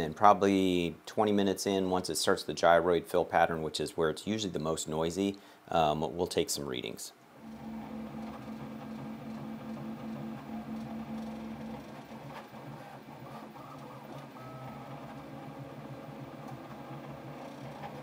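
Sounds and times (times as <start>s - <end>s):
three d printer motors humming: 7.4s - 18.0s.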